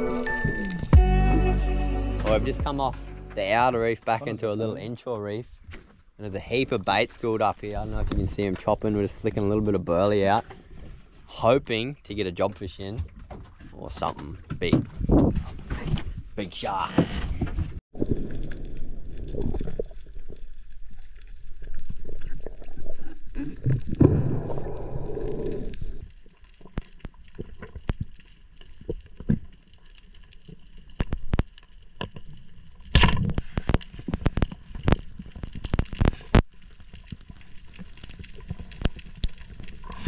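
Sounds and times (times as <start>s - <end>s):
underwater gurgling rumble: 17.9s - 40.0s.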